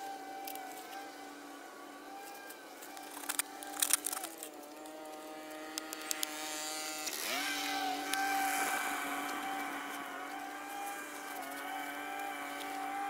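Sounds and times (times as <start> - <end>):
engine running: 0.0 - 13.0
sharp clicks: 2.9 - 4.5.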